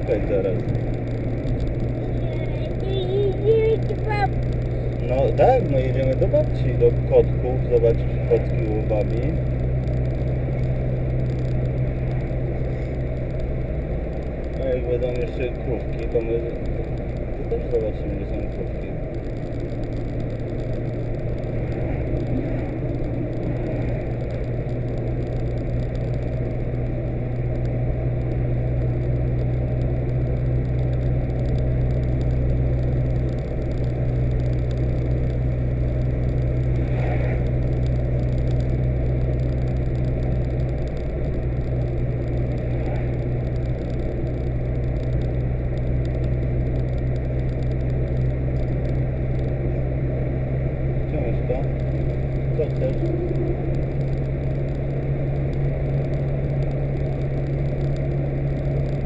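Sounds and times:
car engine and road hum: 0.0s - 59.0s.

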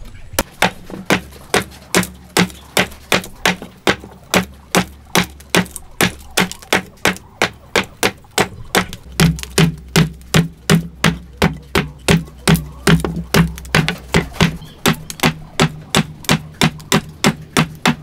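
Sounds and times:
axe chopping wooden log: 0.4s - 18.0s.

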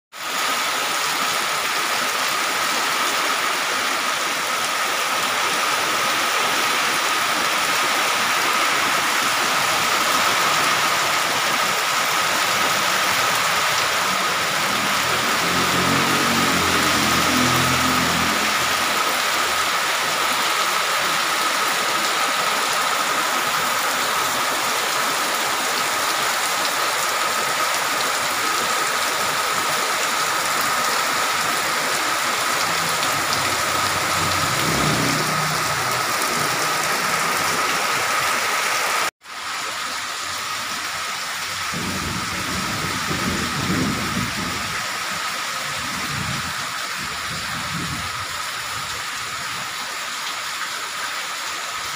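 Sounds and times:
heavy rain on street: 0.1s - 51.9s
traffic rumbling: 7.6s - 20.8s, 28.9s - 39.1s
motorcycle passing: 13.5s - 19.7s, 31.0s - 38.5s.

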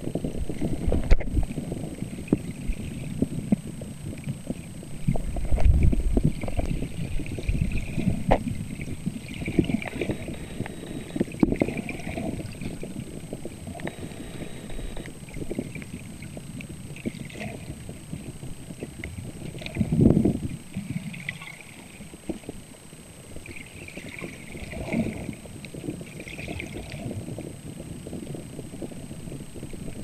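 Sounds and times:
underwater rushing and sloshing: 0.0s - 30.0s
faint steady high tone: 9.4s - 12.7s, 13.6s - 15.2s.

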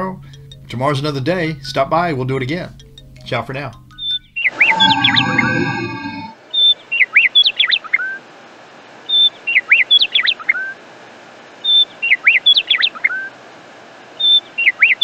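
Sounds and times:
bird song with whistled sweeps: 4.0s - 8.0s, 14.2s - 15.0s
faint steady hiss: 8.0s - 15.0s.

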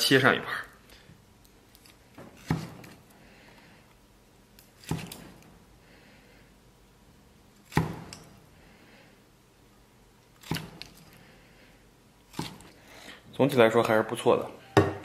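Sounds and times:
cleaver chopping on wooden block: 2.4s - 2.9s, 7.7s - 8.2s.

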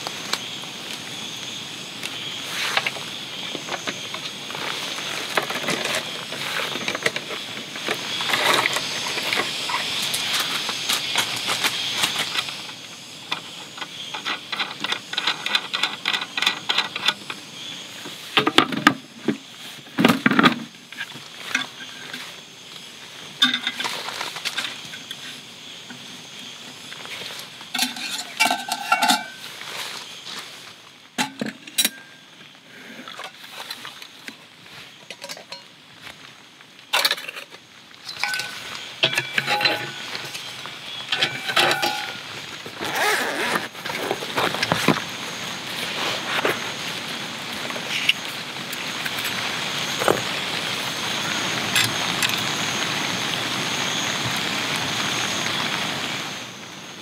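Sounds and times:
metal cups and dishes clinking: 27.8s - 29.4s, 35.1s - 35.7s, 38.1s - 40.0s, 41.1s - 42.2s
rustling and wiping: 41.8s - 48.4s.

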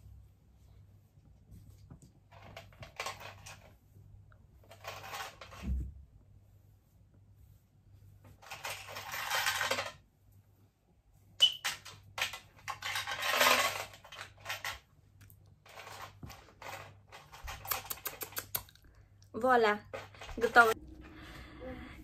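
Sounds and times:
rustling handling noise: 0.0s - 21.4s
small objects clinking: 11.4s - 14.8s
sharp clicks: 17.6s - 18.8s.

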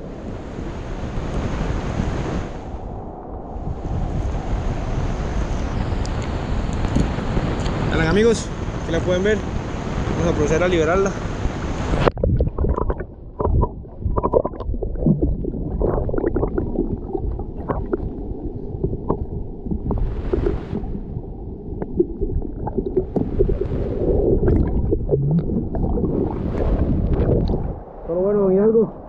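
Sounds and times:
muffled river water sloshing: 11.2s - 28.2s
small underwater knocks: 12.2s - 14.7s, 18.9s - 20.8s.

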